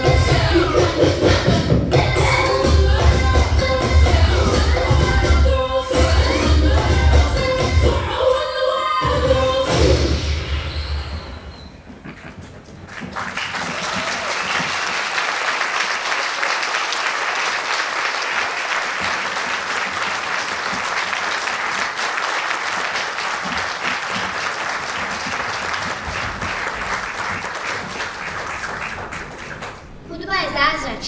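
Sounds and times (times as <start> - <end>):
audience applauding: 12.1 - 30.0.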